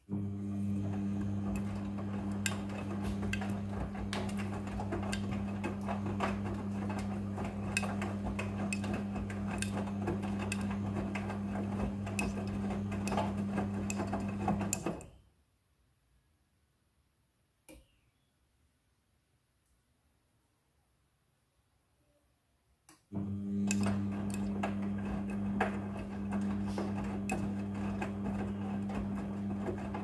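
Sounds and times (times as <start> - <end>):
washing machine motor hum: 0.0 - 15.1, 23.1 - 30.0.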